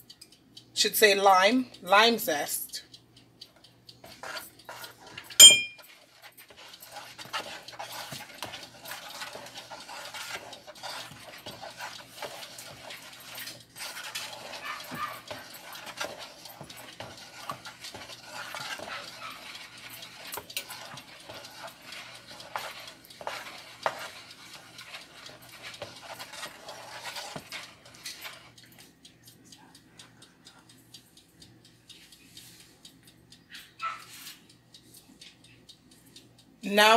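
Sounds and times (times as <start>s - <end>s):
spoon stirring thick liquid: 3.5s - 28.9s
spoon scraping plastic bowl: 6.3s - 28.4s.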